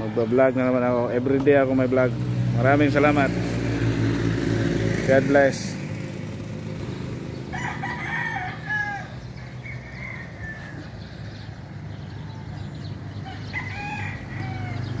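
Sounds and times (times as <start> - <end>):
roosters crowing: 0.0 - 1.0, 6.4 - 15.0.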